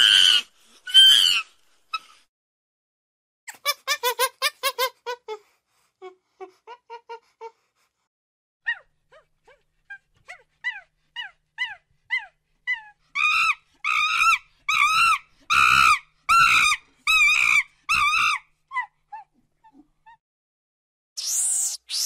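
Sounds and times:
monkey yelping and calling: 0.0s - 2.1s.

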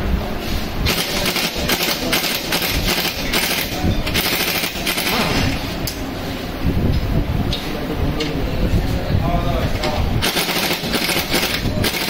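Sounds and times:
pneumatic impact wrench rattling: 0.8s - 6.0s, 10.2s - 12.0s.

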